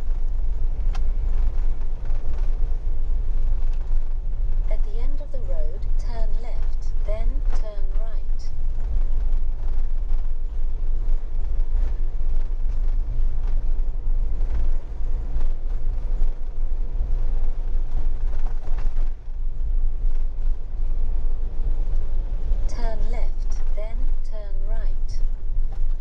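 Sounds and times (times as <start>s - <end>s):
engine and tyres rumbling: 0.0s - 26.0s.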